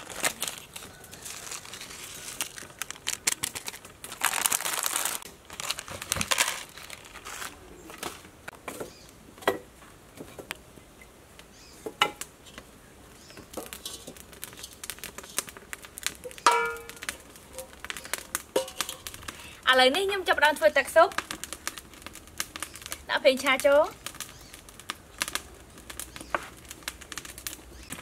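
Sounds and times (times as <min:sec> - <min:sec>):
crinkling: 0:00.0 - 0:08.4, 0:12.3 - 0:28.0
steel pot clanking against wok: 0:16.3 - 0:17.8, 0:18.4 - 0:19.2.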